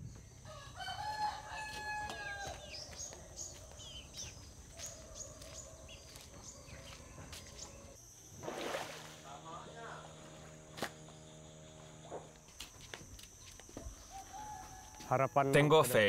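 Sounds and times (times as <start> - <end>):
faint yard ambience: 0.0 - 16.0
rooster crowing: 0.4 - 3.8, 13.9 - 15.5
small birds chirping: 2.1 - 8.0.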